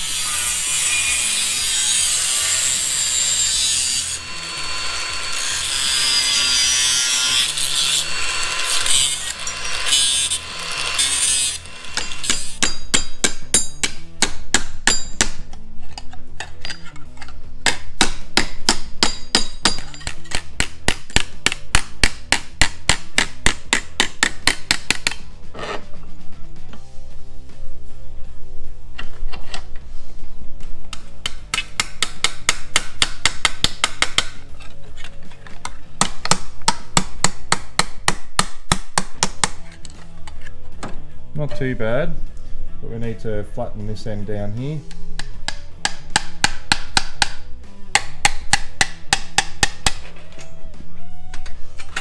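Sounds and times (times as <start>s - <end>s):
power tool cutting sheet steel: 0.0s - 12.6s.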